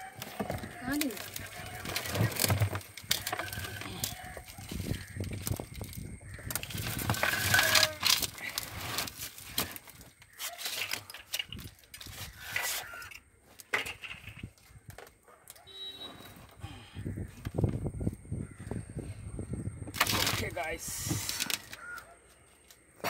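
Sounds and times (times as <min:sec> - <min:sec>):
plastic pot scraping and knocking: 0:00.0 - 0:05.6
soil and roots rustling: 0:00.0 - 0:18.8, 0:19.8 - 0:23.0.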